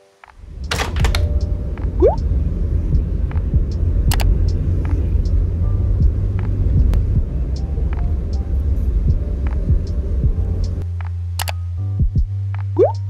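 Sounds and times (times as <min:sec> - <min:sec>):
car interior rumble: 0:00.4 - 0:12.4
light clicks: 0:04.1 - 0:05.4.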